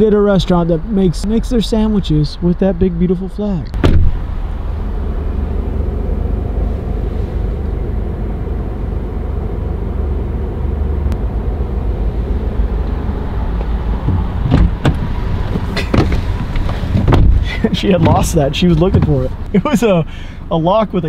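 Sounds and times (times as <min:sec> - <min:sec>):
car door knocks: 0:03.8 - 0:04.2, 0:14.0 - 0:19.2.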